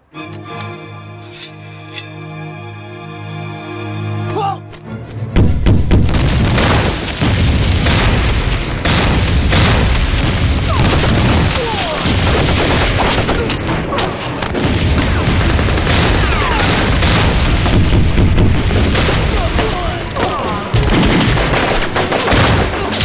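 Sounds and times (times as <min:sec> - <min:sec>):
explosions booming: 0:05.4 - 0:13.9, 0:14.5 - 0:23.0
rifle fire: 0:05.4 - 0:23.0.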